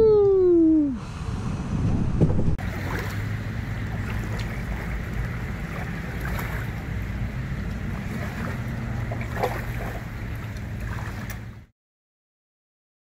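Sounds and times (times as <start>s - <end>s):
steady low hum: 0.0s - 11.7s
kayak paddle splashing: 2.6s - 11.7s.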